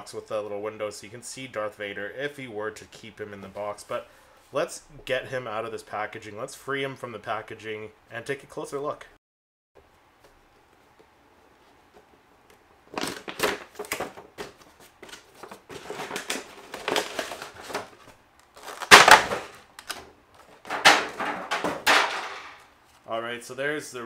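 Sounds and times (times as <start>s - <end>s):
cardboard and plastic crinkling: 12.9s - 23.0s.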